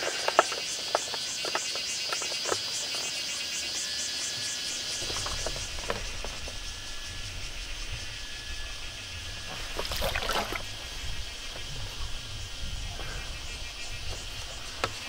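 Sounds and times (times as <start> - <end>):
insects chirring: 0.0 - 15.0
water sloshing and splashing: 4.7 - 12.3.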